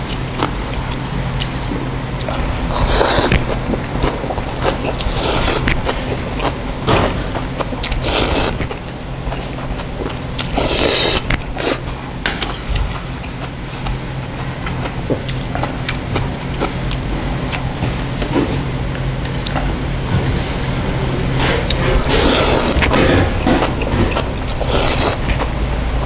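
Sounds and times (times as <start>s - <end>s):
steady low hum: 0.0s - 26.0s
noodles being slurped: 2.2s - 6.6s, 7.8s - 9.6s, 10.2s - 11.9s, 21.6s - 25.5s.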